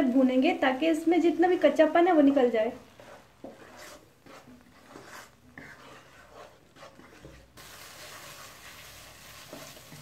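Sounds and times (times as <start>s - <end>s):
paste sizzling: 2.0s - 10.0s
spatula scraping paste in pan: 2.2s - 10.0s.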